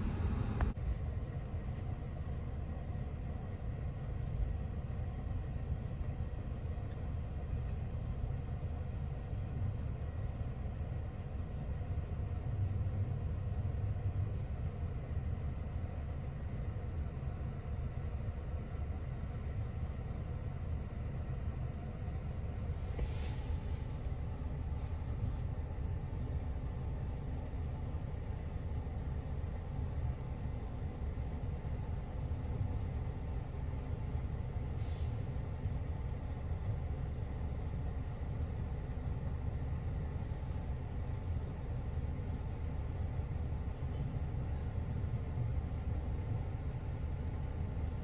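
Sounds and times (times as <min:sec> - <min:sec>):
garbage truck diesel engine running: 0:00.0 - 0:00.8
diesel engine running: 0:00.0 - 0:48.0
brief hiss: 0:22.8 - 0:24.0, 0:34.8 - 0:35.2.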